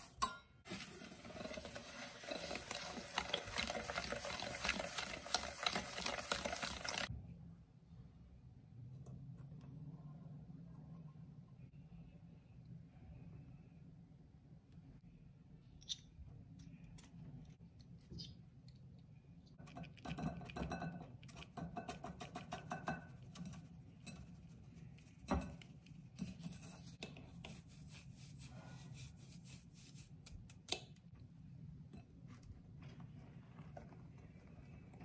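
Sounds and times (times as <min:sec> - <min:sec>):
whisk scraping in metal sieve: 0:00.0 - 0:07.1, 0:26.2 - 0:30.2.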